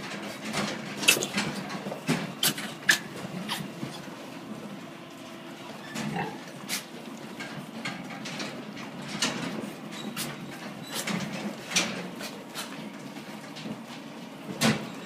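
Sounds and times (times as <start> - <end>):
piglets grunting: 5.8 - 7.0.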